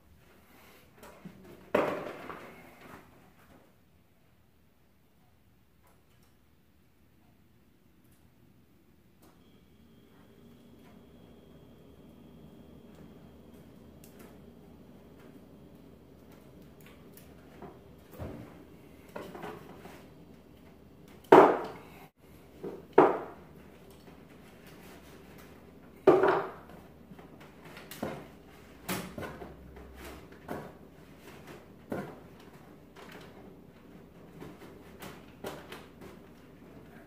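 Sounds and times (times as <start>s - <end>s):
knocks in wooden kitchen cabinets: 21.2s - 21.8s, 22.6s - 23.4s, 26.0s - 26.7s.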